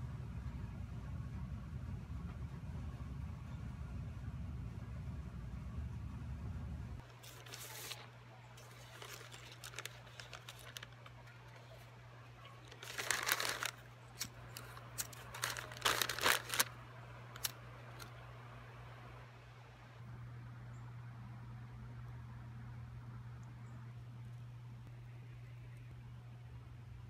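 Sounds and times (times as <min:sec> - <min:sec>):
steady low hum: 0:00.0 - 0:27.0
paper crumpling and tearing: 0:07.0 - 0:11.9, 0:12.6 - 0:16.8, 0:17.4 - 0:18.1.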